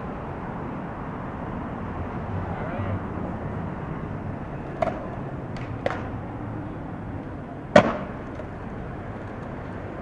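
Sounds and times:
skateboard clacking on ground: 4.6 - 6.2, 7.2 - 10.0
skateboard wheels clicking on stone: 4.7 - 6.2, 7.2 - 10.0.

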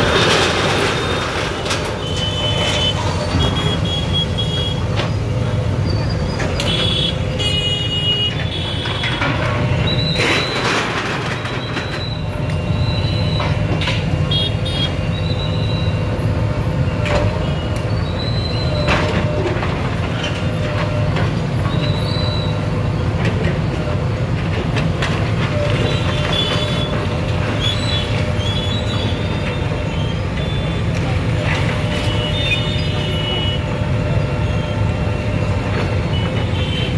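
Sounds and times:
diesel engine running: 0.0 - 36.9.

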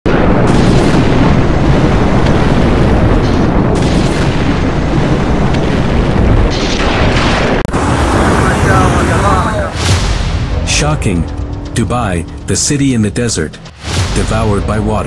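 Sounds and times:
rain and spray hissing: 7.7 - 10.0.

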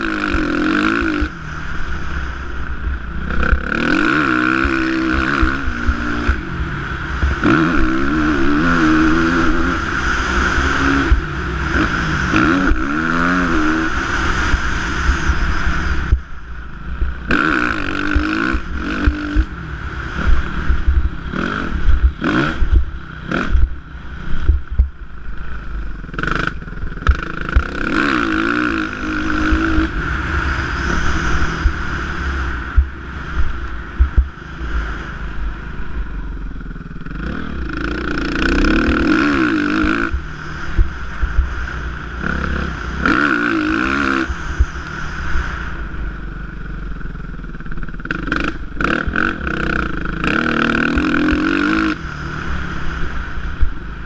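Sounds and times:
motocross bike engine revving: 0.0 - 54.0.

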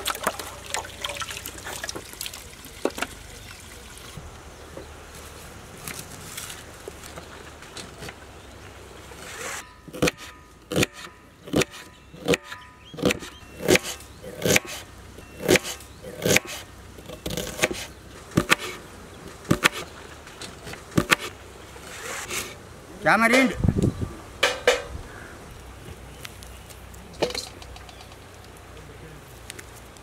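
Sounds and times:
knife chopping on wooden board: 17.3 - 18.8, 21.0 - 21.3.

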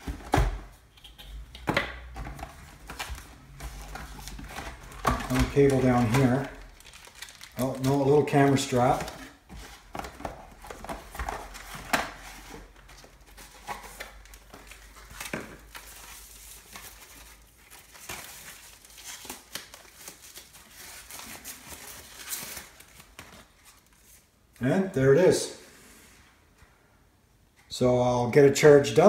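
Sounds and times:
packaging clicks and knocks: 0.0 - 8.0
plastic wrapping crinkling: 2.4 - 24.2.

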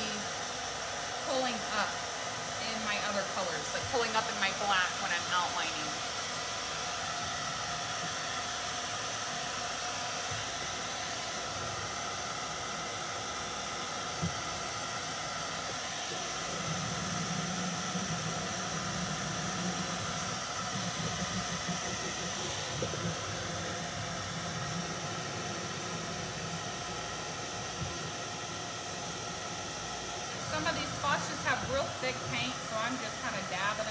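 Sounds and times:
hair dryer blowing: 0.0 - 33.9
deeper hum: 15.7 - 28.2.

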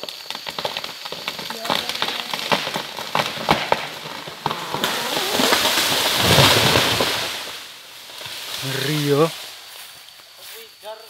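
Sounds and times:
wood cracking and snapping: 0.0 - 8.6
tree crown crashing through branches: 0.0 - 9.6.

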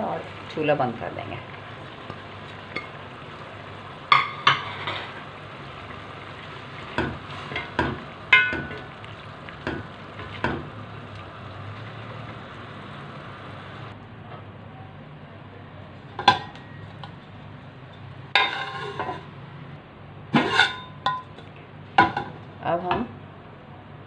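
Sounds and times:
food sizzling in pot: 0.0 - 14.0
spoon knocking against pot: 7.0 - 8.9.

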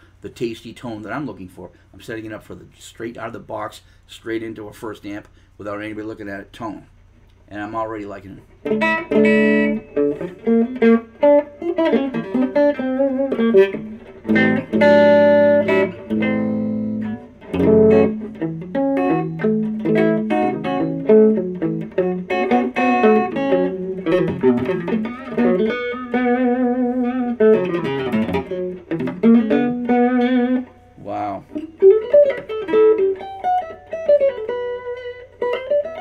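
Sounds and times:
clean electric guitar notes and chords: 8.5 - 36.0.

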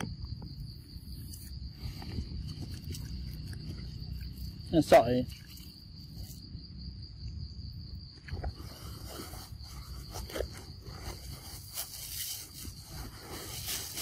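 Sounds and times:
high-pitched insect drone: 0.0 - 14.0
soft rustles and scrapes: 8.3 - 14.0.

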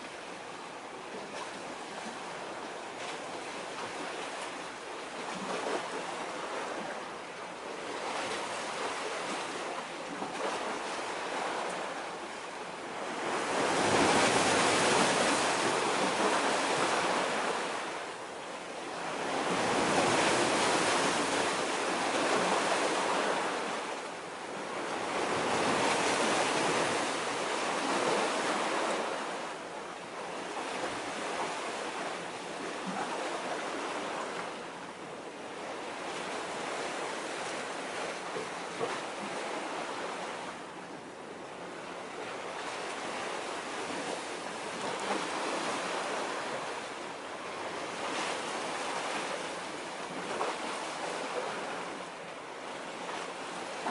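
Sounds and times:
waves washing against breakwater: 0.0 - 53.9.

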